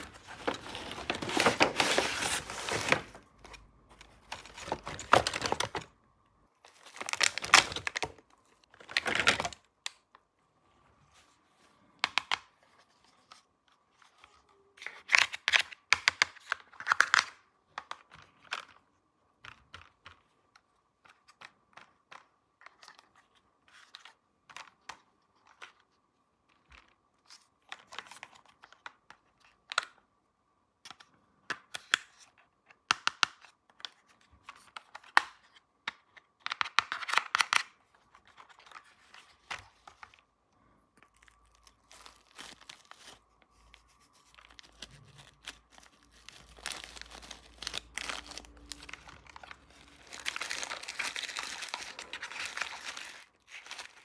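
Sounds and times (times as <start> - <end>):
plastic packaging crinkling and tearing: 0.0 - 5.9, 6.6 - 9.7, 41.0 - 54.0.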